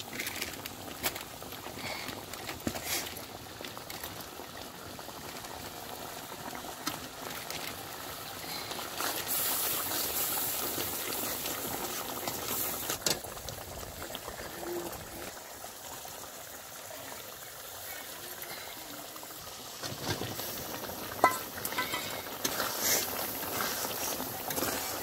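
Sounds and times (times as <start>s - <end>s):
curry boiling and bubbling: 0.0s - 25.0s
metal spatula stirring: 21.2s - 25.0s.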